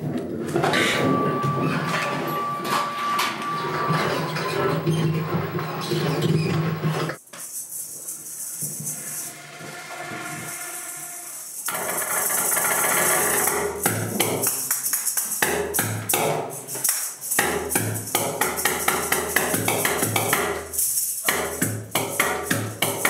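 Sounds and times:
hissing noise: 0:07.2 - 0:12.3.

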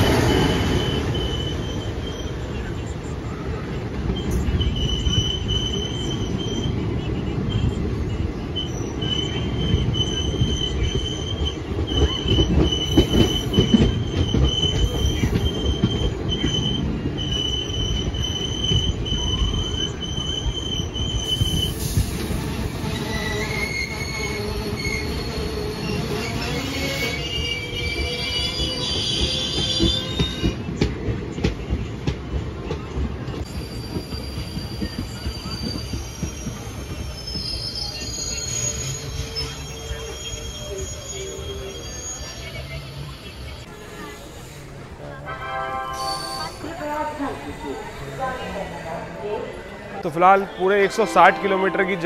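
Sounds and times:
train rumbling on rails: 0:00.0 - 0:52.0
wheel squeal: 0:00.2 - 0:02.5, 0:08.6 - 0:30.6, 0:33.4 - 0:44.7.

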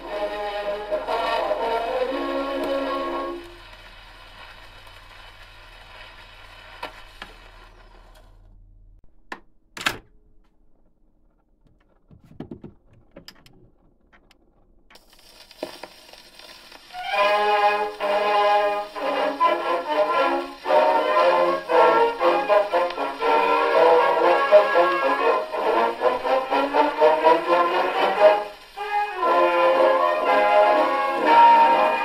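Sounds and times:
military brass band on record: 0:00.0 - 0:03.6, 0:17.0 - 0:32.0
record surface hiss: 0:00.0 - 0:32.0.

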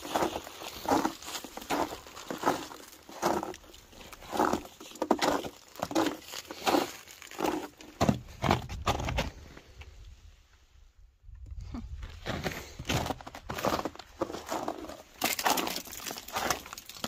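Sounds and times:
boots crunching on snow: 0:00.0 - 0:09.1, 0:12.2 - 0:16.7.

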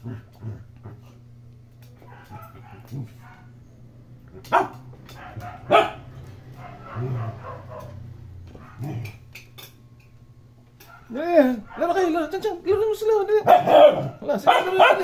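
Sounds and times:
dog barking: 0:02.0 - 0:03.5, 0:04.4 - 0:09.1, 0:10.8 - 0:12.1, 0:13.4 - 0:15.0.

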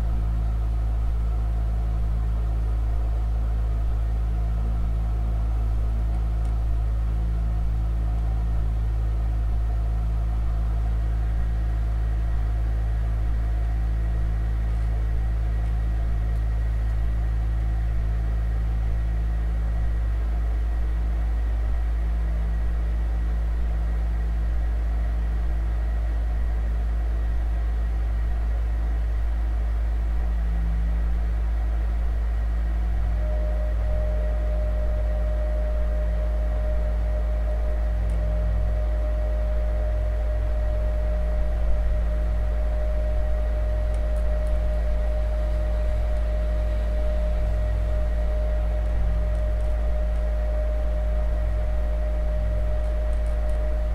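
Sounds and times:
deep organ drone: 0:00.0 - 0:53.9
low rumble: 0:29.0 - 0:53.9.

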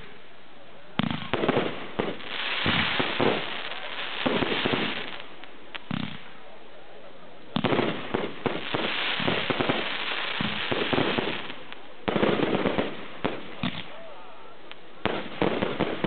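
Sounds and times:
fireworks crackling: 0:00.0 - 0:16.0
fireworks bursting with bangs: 0:00.9 - 0:06.5, 0:07.5 - 0:16.0.

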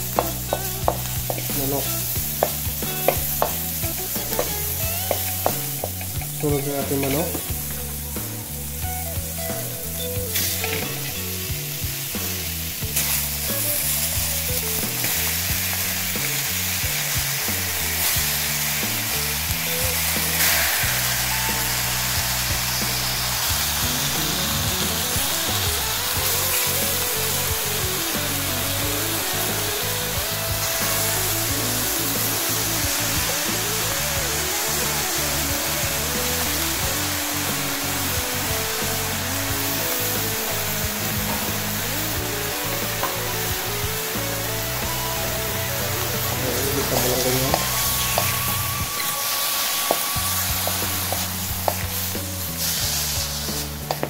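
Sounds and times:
background music: 0:00.0 - 0:54.0
food sizzling in hot oil: 0:00.0 - 0:54.0
wooden spatula stirring in wok: 0:00.1 - 0:06.4.

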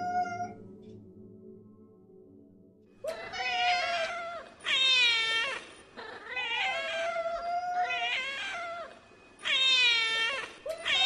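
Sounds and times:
cat meowing: 0:00.0 - 0:00.6, 0:03.1 - 0:11.0.

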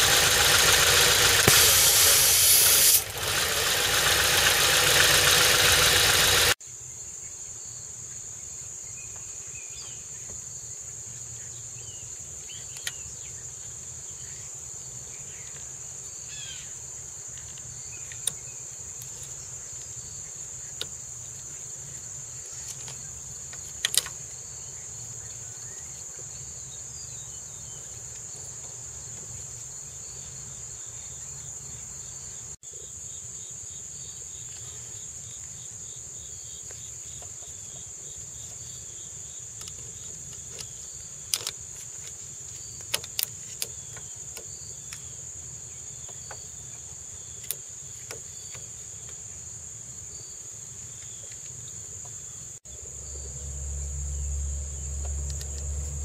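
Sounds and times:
insects chirping: 0:00.0 - 0:56.0
low hum: 0:52.7 - 0:56.0.

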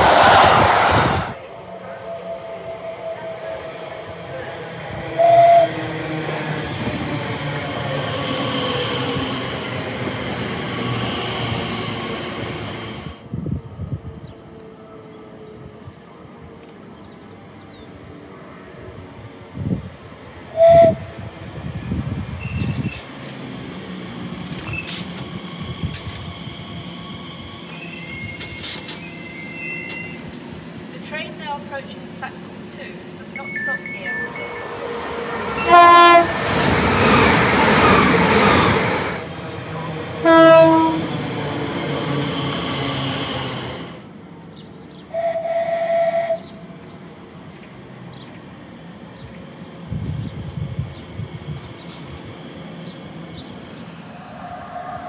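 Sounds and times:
train rumbling past on rails: 0:00.0 - 0:55.0
train horn toot: 0:05.1 - 0:05.8, 0:20.5 - 0:21.0, 0:35.5 - 0:36.4, 0:40.2 - 0:41.2, 0:45.1 - 0:46.6.

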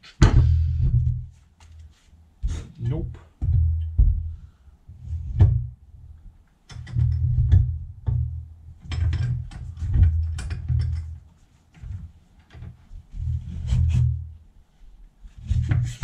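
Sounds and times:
metal clicks and knocks: 0:06.4 - 0:12.8.

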